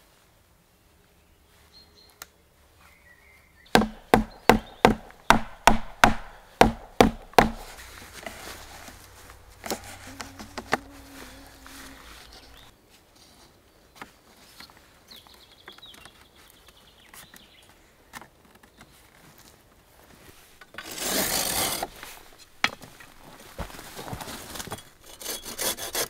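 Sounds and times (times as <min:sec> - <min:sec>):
wood knocking on wood: 0:03.8 - 0:12.7.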